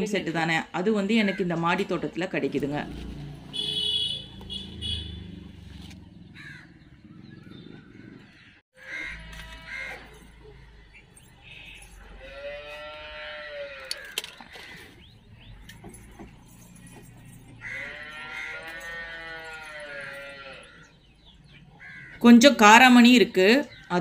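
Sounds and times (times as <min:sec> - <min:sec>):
cow mooing: 0:08.9 - 0:10.2, 0:12.1 - 0:14.1, 0:17.6 - 0:20.9.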